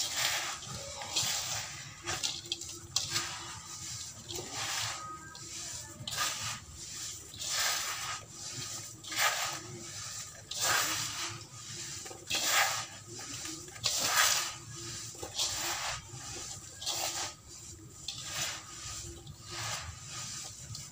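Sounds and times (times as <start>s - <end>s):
hands crumbling damp sand mix: 0.0s - 20.9s.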